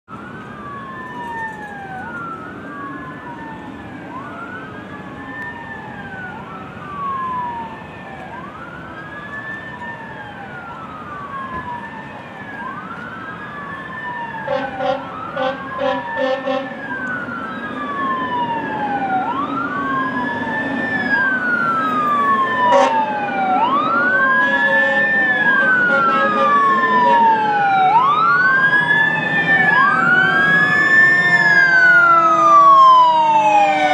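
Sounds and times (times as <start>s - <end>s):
fire engine sirens wailing: 0.1s - 33.9s.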